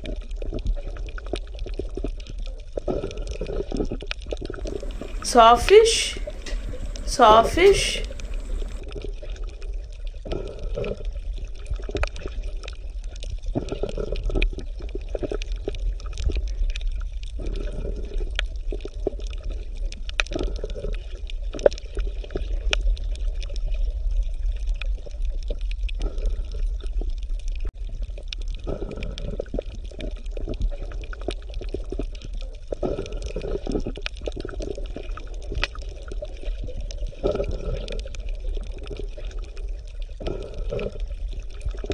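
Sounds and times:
water bubbling and gurgling: 0.1 - 5.3, 6.2 - 7.4, 8.0 - 41.9
low rumble: 6.2 - 7.1, 8.0 - 8.8.

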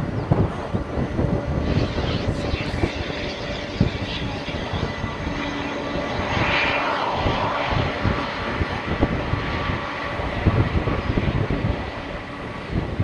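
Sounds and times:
jet engines whining: 0.0 - 13.0
wind buffeting microphone: 0.0 - 13.0.

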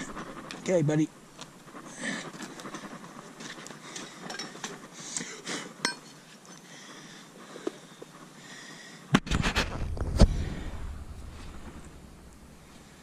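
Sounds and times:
hammer striking horseshoe: 5.8 - 6.1
horseshoe metallic clinks: 5.8 - 6.2.

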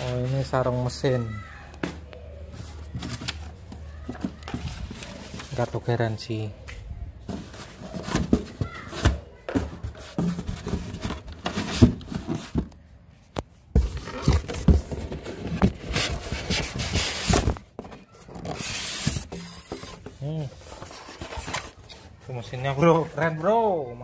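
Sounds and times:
cardboard and foam rubbing: 2.5 - 5.9, 7.3 - 12.7, 13.8 - 23.7
knocks and thumps: 7.3 - 12.8.

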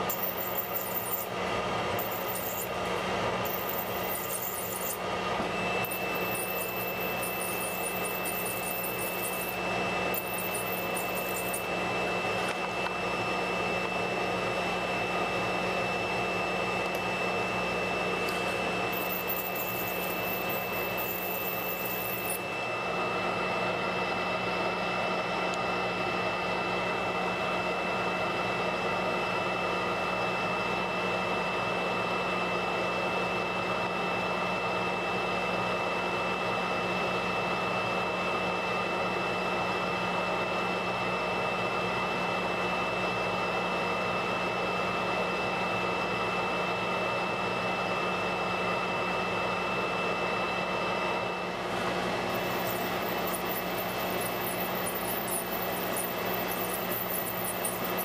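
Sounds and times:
spotting machine whine and hum: 0.0 - 58.0.

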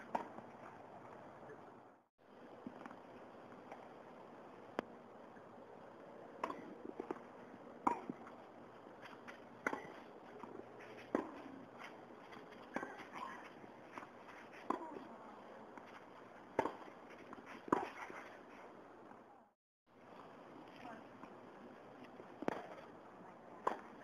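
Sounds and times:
tennis racket hitting ball: 16.5 - 18.2.

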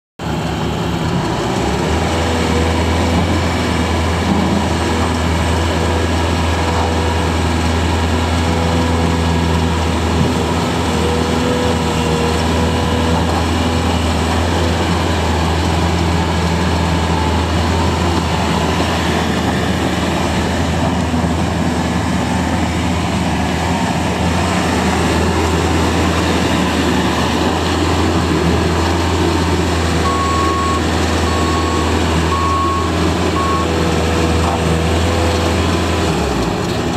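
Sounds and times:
diesel engine running: 0.2 - 36.9
backup alarm beeping: 30.0 - 33.8.

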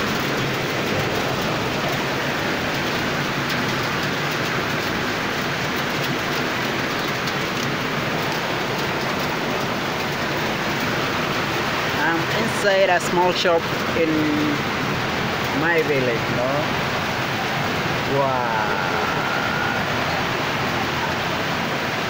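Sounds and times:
rain falling: 0.0 - 22.0.

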